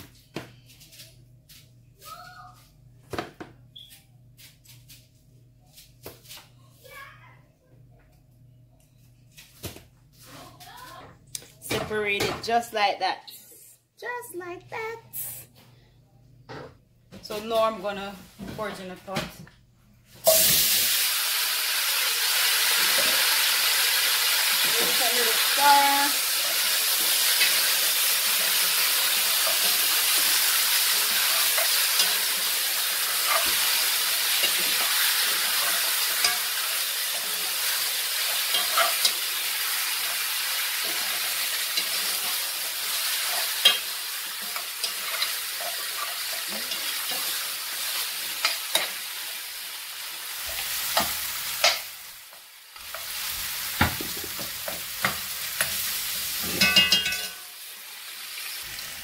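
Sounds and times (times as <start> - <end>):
meat sizzling in hot oil: 20.2 - 59.0
metal spoon scraping a pot: 56.3 - 57.4.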